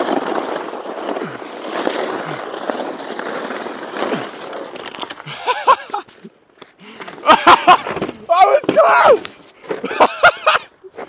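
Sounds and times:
sledge scraping over snow: 0.0s - 11.0s
people shouting: 8.3s - 9.3s.

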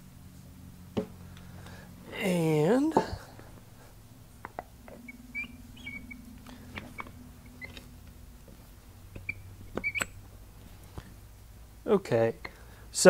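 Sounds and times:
faint steady hum: 0.0s - 13.0s
short high squeaks: 4.9s - 7.9s, 9.1s - 10.2s.

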